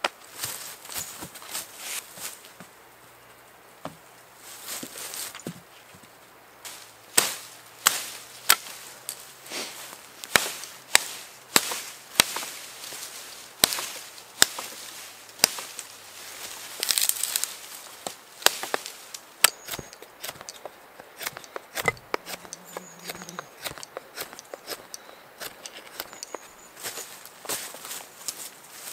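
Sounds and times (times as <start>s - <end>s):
leaves rustling: 0.0s - 28.9s
blade cutting twigs: 6.7s - 28.4s.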